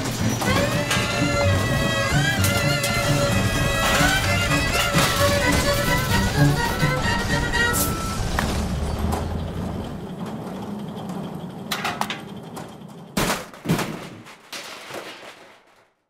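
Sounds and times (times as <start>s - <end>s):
violin music: 0.0s - 8.8s.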